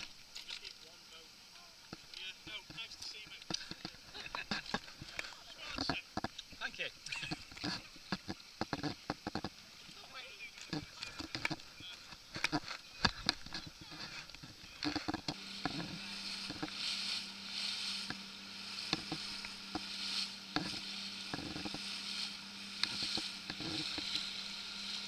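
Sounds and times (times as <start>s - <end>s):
steady low hum: 0.0s - 25.0s
water hiss: 0.0s - 25.0s
waves lapping against boat hull: 2.1s - 25.0s.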